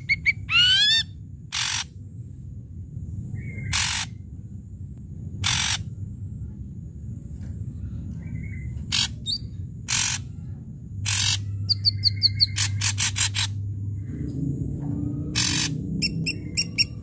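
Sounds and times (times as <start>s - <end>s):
bird harsh rasping notes: 5.4s - 5.9s, 8.3s - 13.6s
bird whistled notes: 15.4s - 17.0s.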